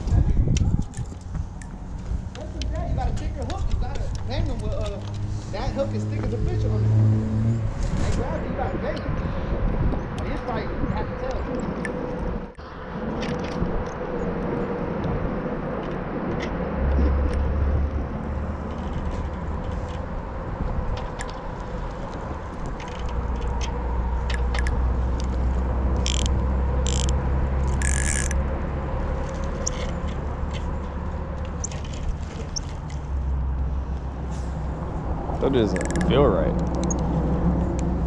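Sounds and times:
reel clicks: 0:20.9 - 0:28.4, 0:29.2 - 0:30.7, 0:35.7 - 0:37.1
fishing reel gears whirring: 0:26.0 - 0:28.4, 0:35.7 - 0:37.1.

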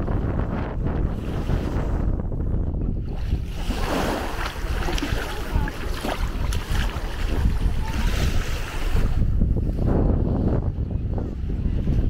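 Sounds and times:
wind rumbling on microphone: 0:00.0 - 0:12.0
waves washing onto sand: 0:03.2 - 0:09.3.

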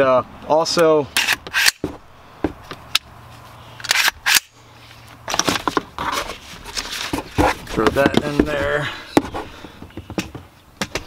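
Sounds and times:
metallic clicks of gun parts: 0:01.2 - 0:01.8, 0:03.8 - 0:04.5.

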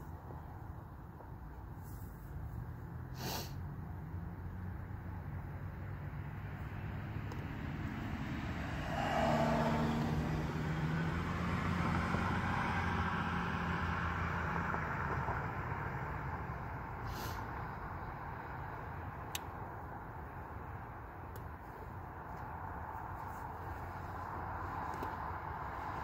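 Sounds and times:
road vehicle hum: 0:00.0 - 0:26.0
car passing: 0:03.8 - 0:17.0.

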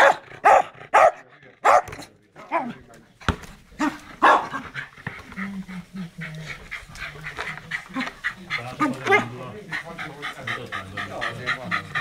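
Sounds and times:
small dog barking: 0:00.0 - 0:01.9, 0:04.2 - 0:04.6
dog panting rapidly: 0:04.3 - 0:12.0.

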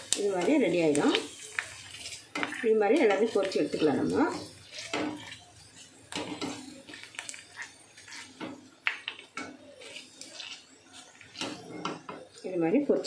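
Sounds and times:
frying in hot oil sizzle: 0:00.0 - 0:13.0.

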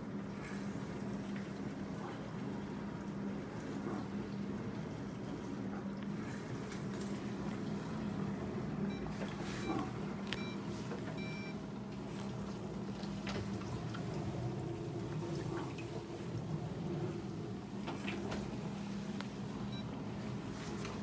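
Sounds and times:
dishwasher pump hum: 0:00.0 - 0:21.0
water washing inside dishwasher: 0:00.0 - 0:21.0
short electronic beeps: 0:10.4 - 0:10.6, 0:11.2 - 0:11.5.

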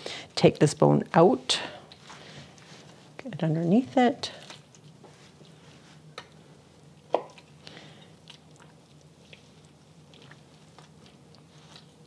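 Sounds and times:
wet squishing of meat: 0:04.3 - 0:06.3, 0:06.9 - 0:12.0.

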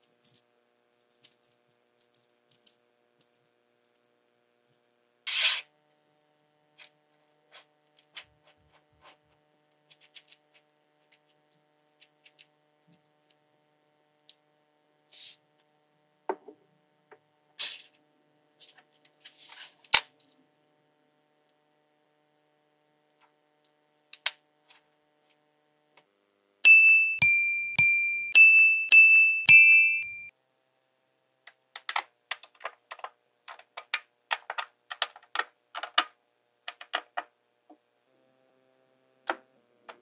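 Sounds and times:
magnetic balls clicking together: 0:00.0 - 0:04.9, 0:31.5 - 0:36.1.

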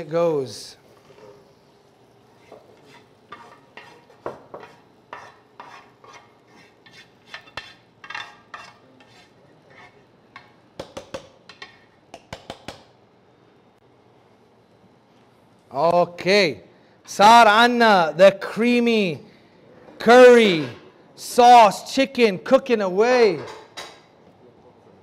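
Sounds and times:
utensils scraping a pan: 0:02.3 - 0:10.5.

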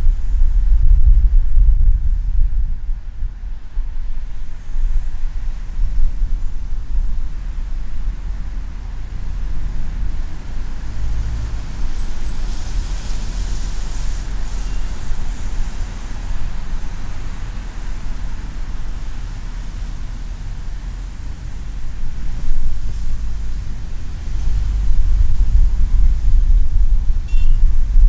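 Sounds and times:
car tyre and engine rumble: 0:00.0 - 0:28.0
tyre hiss: 0:11.9 - 0:18.2.

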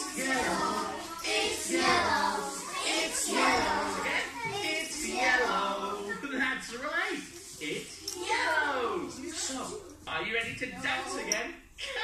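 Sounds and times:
young children talking: 0:00.0 - 0:06.4, 0:08.1 - 0:10.0.

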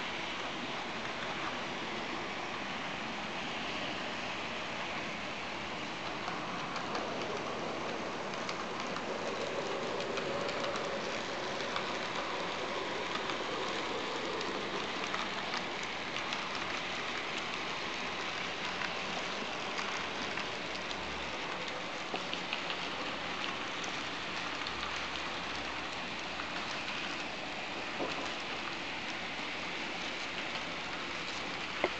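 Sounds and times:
faint irregular clicks: 0:05.9 - 0:31.9
model train whirring: 0:06.0 - 0:25.9.

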